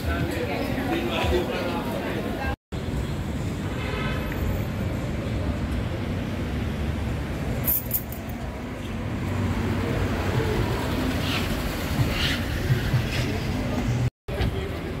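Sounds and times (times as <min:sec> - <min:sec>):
rumble of passing vehicles: 0:00.1 - 0:15.0
high metallic clinking: 0:07.6 - 0:08.4.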